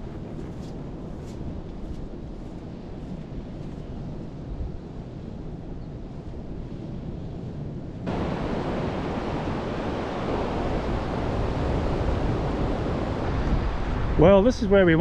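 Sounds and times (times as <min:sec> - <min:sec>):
wind rumbling on microphone: 0:00.0 - 0:15.0
ocean surf on a beach: 0:08.0 - 0:15.0.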